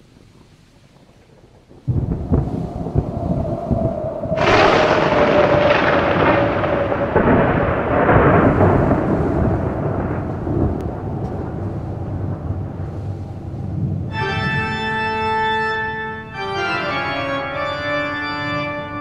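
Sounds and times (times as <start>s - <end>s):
thunder rumble: 0.0s - 19.0s
thunder crack: 1.2s - 15.1s.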